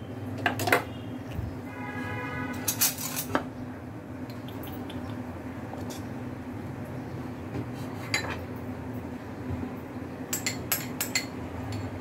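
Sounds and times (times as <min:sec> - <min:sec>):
metal utensils clinking on pot: 0:02.6 - 0:03.4, 0:10.3 - 0:12.0.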